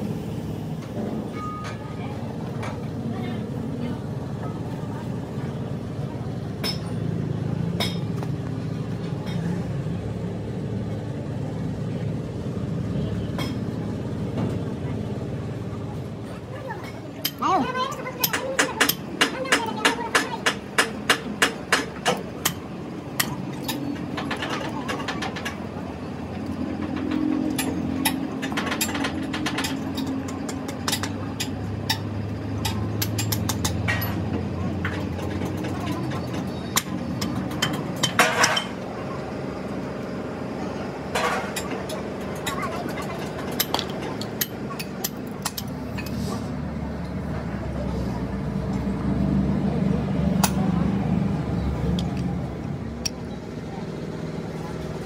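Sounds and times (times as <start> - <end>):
low mechanical rumble: 0.0 - 55.0
spanner clicking on bolts: 26.9 - 34.2, 41.2 - 46.2
low engine hum: 38.7 - 55.0.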